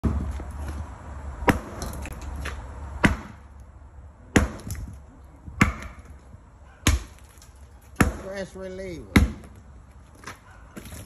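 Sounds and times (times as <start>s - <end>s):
sledgehammer striking metal on concrete: 1.4s - 3.5s, 4.3s - 4.9s, 5.6s - 6.2s, 6.8s - 9.6s.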